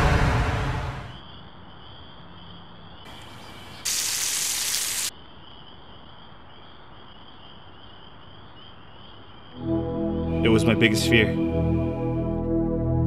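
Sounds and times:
insects chirping: 1.1 - 10.2
loud hiss burst: 3.1 - 5.1.

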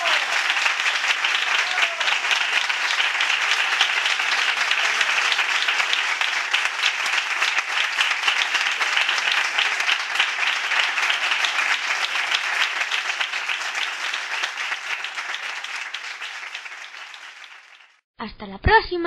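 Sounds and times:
crowd applauding: 0.0 - 18.0.

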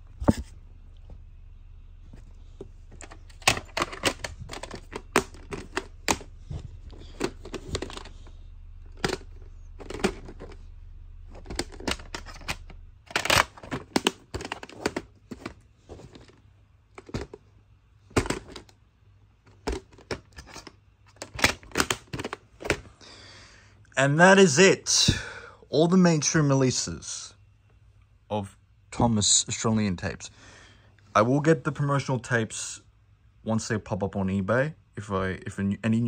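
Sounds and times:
plastic cassette cases clattering: 2.1 - 17.5, 18.1 - 18.8, 19.4 - 22.9.

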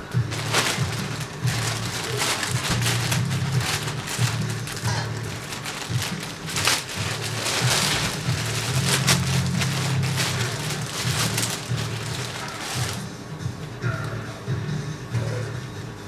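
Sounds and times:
plastic mailer crinkling and tearing: 0.3 - 13.1.

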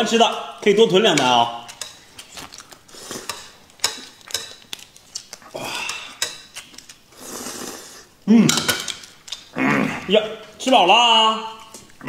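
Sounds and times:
chopsticks clicking on plate: 0.6 - 7.0
noodles slurped and chewed: 1.7 - 8.2.

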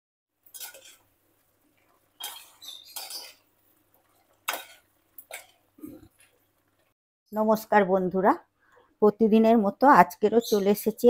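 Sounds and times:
utensils clinking against dishes: 2.2 - 3.4.

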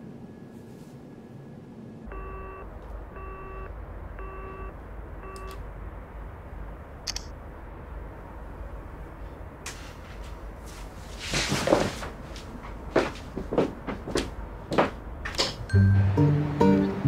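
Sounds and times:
low steady hum: 0.0 - 11.3
telephone busy tone beeps: 2.1 - 5.6.

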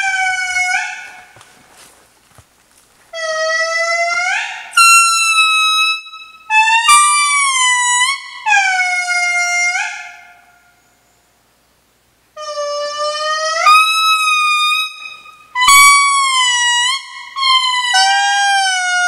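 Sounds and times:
lemur calls sliding upward: 12.4 - 19.0.

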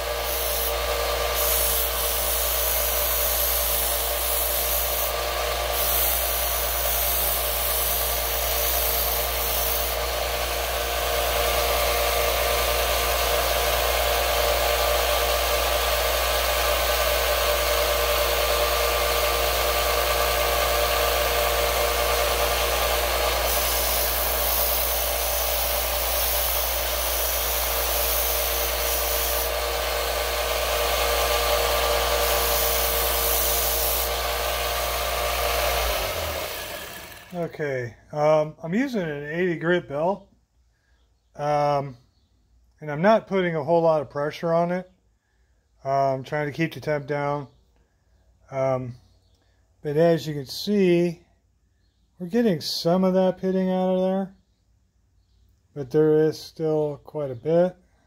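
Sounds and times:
belt sander grinding metal: 0.0 - 37.6.

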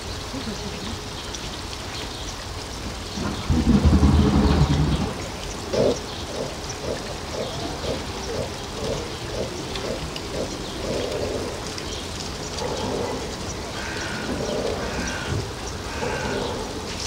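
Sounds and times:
uneven rumble: 3.2 - 5.4.

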